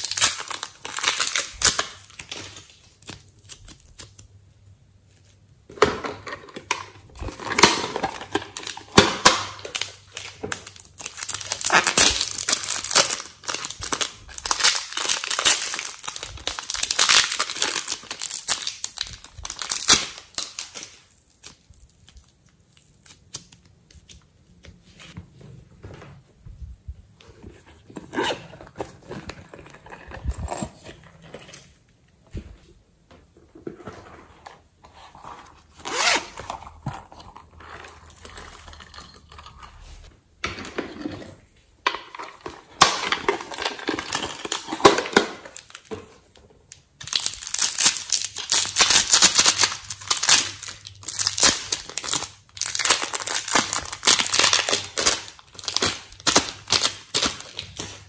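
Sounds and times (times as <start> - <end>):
plastic wrapping crinkling: 0.0 - 4.3, 6.9 - 25.2, 42.0 - 58.0.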